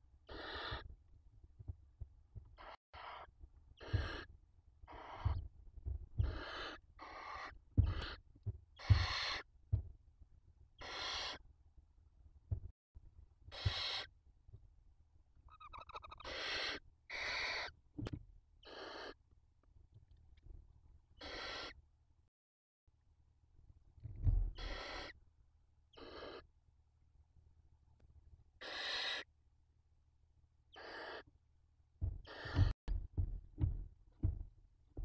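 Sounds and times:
owl rattling call: 0.3 - 0.8, 2.6 - 4.3, 4.9 - 5.4, 6.2 - 8.2, 8.8 - 9.5, 10.8 - 11.4, 13.5 - 14.1, 15.5 - 17.8, 18.6 - 19.2, 21.2 - 21.8, 24.5 - 25.2, 25.9 - 26.4, 28.6 - 29.3, 30.7 - 31.3, 32.2 - 32.8
owls hissing screeches: 10.8 - 11.4, 15.7 - 17.7, 21.2 - 21.8, 24.6 - 25.1, 28.6 - 29.2
low knocks: 32.0 - 35.0.

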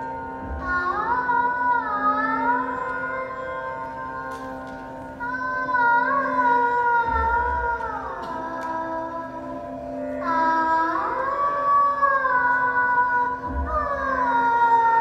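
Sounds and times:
girl singing through loudspeakers: 0.0 - 15.0.

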